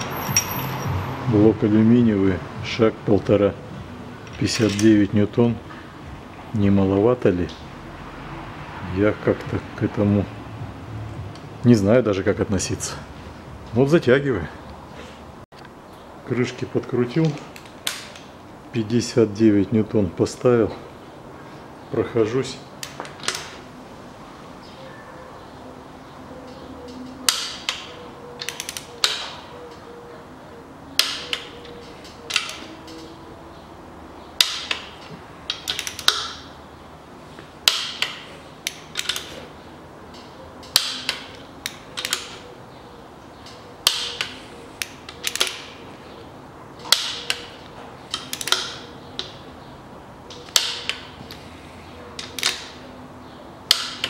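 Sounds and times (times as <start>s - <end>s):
torque wrench clicking: 34.4s - 36.5s, 43.4s - 45.7s, 48.1s - 49.3s.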